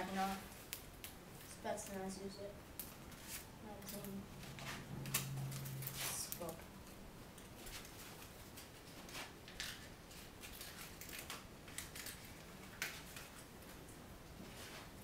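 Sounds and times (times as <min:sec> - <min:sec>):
paper toy rifle clicks and crinkles: 0:09.5 - 0:13.4.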